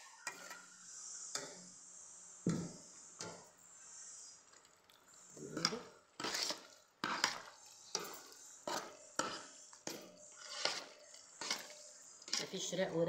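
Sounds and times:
spoon scraping metal pot: 0.0 - 1.6, 5.2 - 13.0
spoon stirring pasta in a pot: 0.0 - 13.0.

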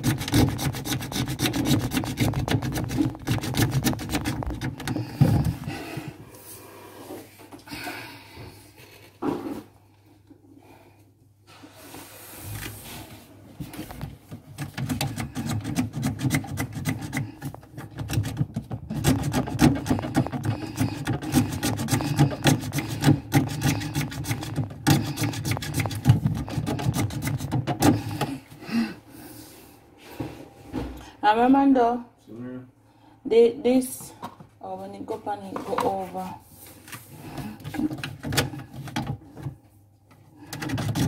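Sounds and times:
hand tool rasping on wood: 0.0 - 5.6, 14.9 - 28.3, 40.4 - 41.0.

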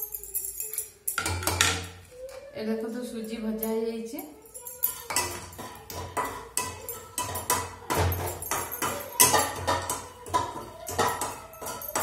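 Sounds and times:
metal spatula scraping a pan: 5.0 - 12.0.

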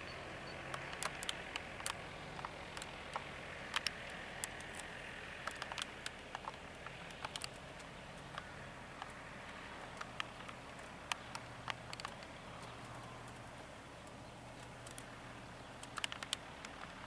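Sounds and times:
light plane engine idling: 0.0 - 17.0.

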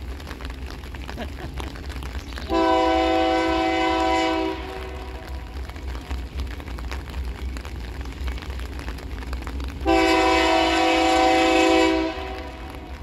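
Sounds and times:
low steady rumble: 0.0 - 13.0
locomotive air horn: 2.5 - 5.3, 9.8 - 12.9.

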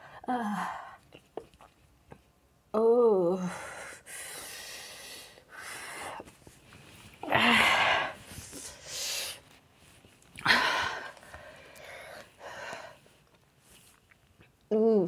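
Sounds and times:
woman breathing hard: 3.4 - 6.2, 7.2 - 9.4, 10.4 - 13.2.

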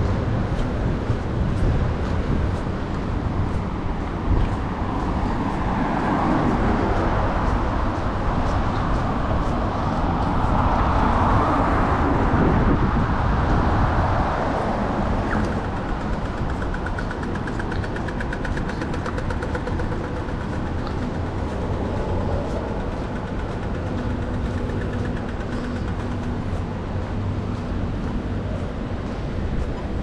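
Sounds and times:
steady traffic noise: 0.0 - 30.0
vehicle passing: 0.0 - 30.0
fast regular ticking: 15.5 - 27.1.

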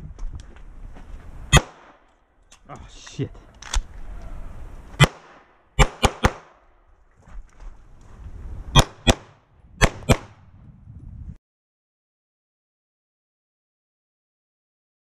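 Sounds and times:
handgun shots: 1.5 - 2.0, 5.0 - 6.6.

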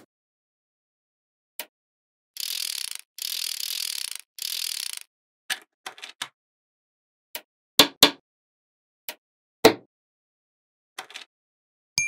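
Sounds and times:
magnetic balls clicking together: 2.4 - 5.1.

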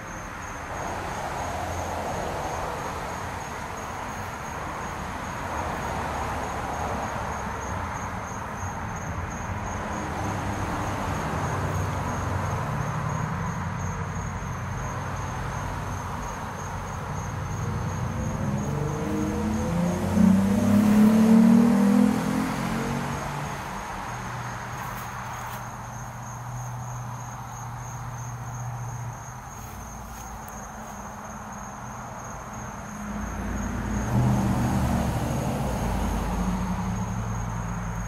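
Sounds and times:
crickets trilling: 0.0 - 38.0
approaching vehicle engine: 9.6 - 38.0.

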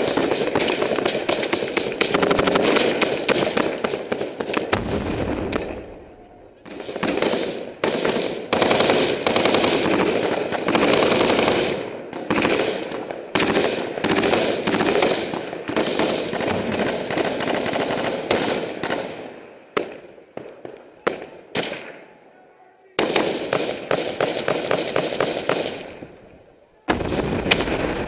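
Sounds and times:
machine gun firing bursts: 0.0 - 5.9, 6.6 - 21.9, 23.0 - 26.0
single gunshots: 23.0 - 26.0, 26.9 - 28.0.

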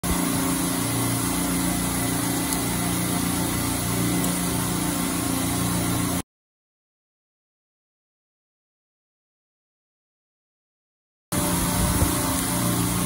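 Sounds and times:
machinery drone: 0.0 - 6.2, 11.3 - 13.0.

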